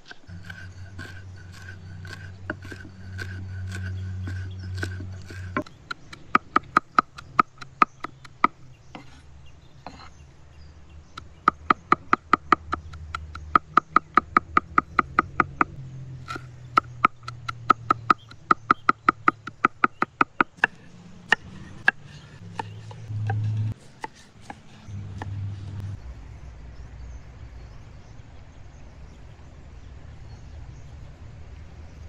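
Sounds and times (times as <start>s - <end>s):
cleaver chopping on wooden board: 0.0s - 9.2s, 11.2s - 25.9s.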